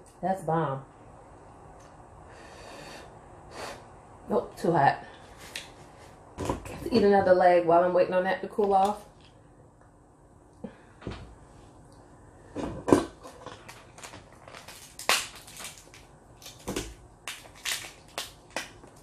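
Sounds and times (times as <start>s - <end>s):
crab shell cracking: 13.4s - 19.0s.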